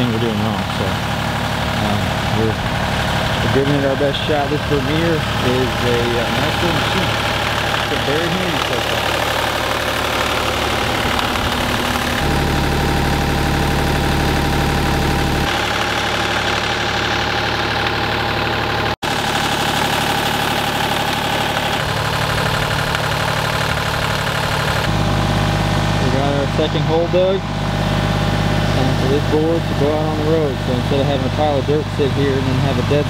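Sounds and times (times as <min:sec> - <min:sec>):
engine running steadily: 0:00.0 - 0:33.0.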